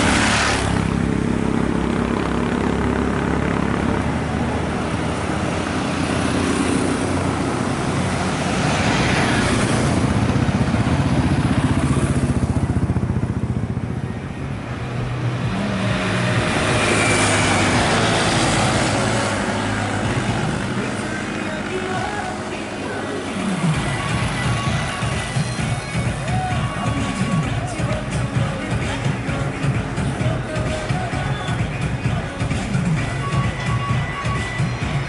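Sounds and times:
motorcycles passing: 0.0 - 35.0.

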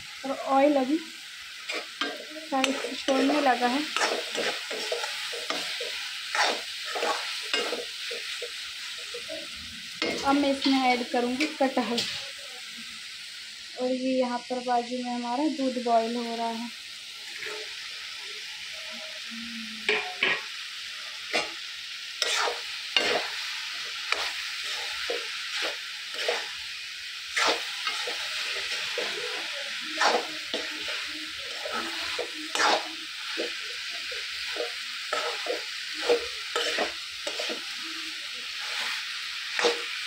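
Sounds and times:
food sizzling in hot oil: 0.0 - 40.0
metal spatula scraping a pan: 1.6 - 12.4, 17.2 - 17.8, 19.9 - 20.5, 21.2 - 21.6, 22.2 - 40.0.

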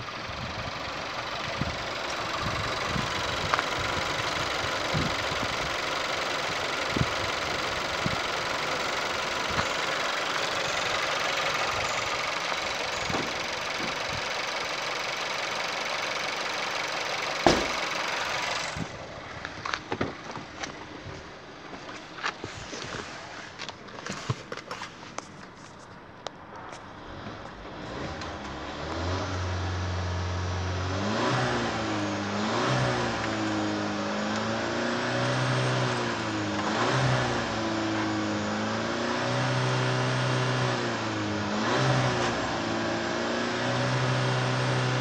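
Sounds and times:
car engine idling: 0.0 - 24.0
sharp knock: 17.4 - 17.8.

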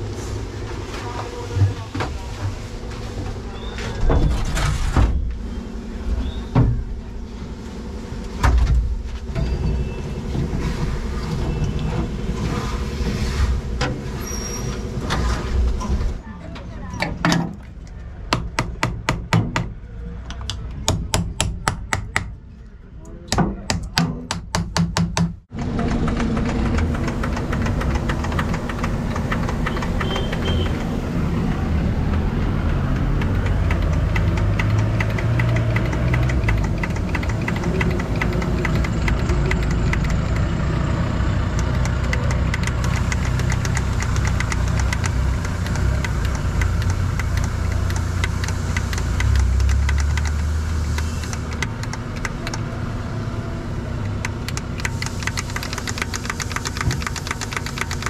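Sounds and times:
diesel truck engine knocking: 23.6 - 50.6, 54.1 - 58.0.

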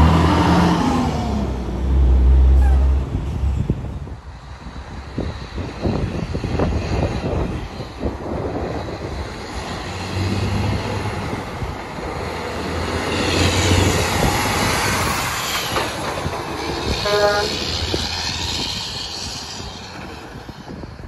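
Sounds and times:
diesel truck passing: 0.0 - 21.0
truck horn toot: 17.0 - 17.7.

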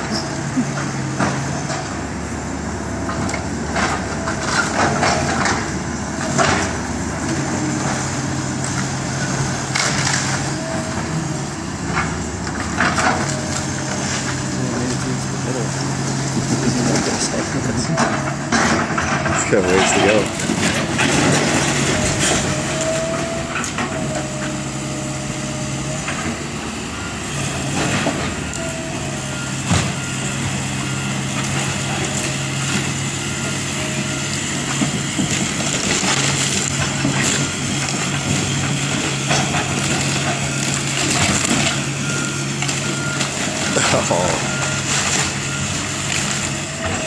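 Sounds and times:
excavator diesel engine running: 0.0 - 47.0
wood cracking and splintering: 3.1 - 11.2, 11.9 - 24.4, 34.2 - 47.0.

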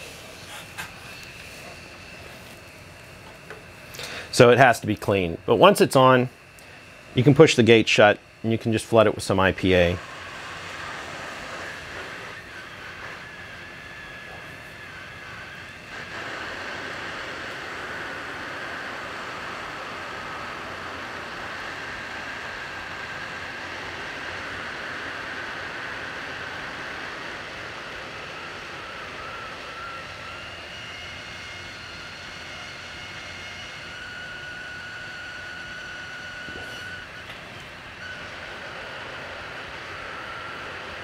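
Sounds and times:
hot air blower hissing: 0.0 - 41.0.

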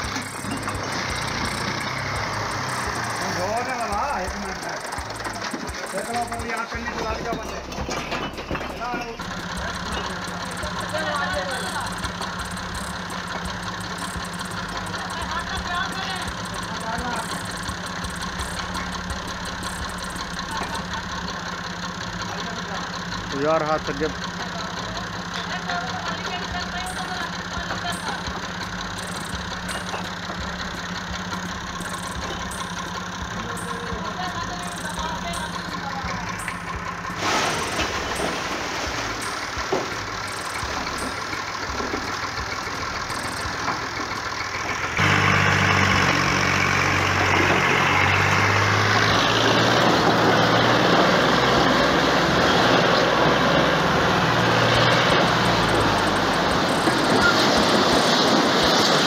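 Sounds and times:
tractor diesel engine: 0.0 - 59.0
bricks sliding and tumbling: 4.6 - 20.8.

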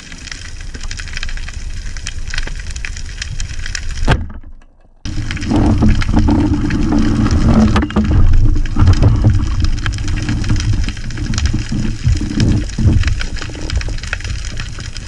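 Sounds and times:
muffled underwater rumble: 5.1 - 15.0.

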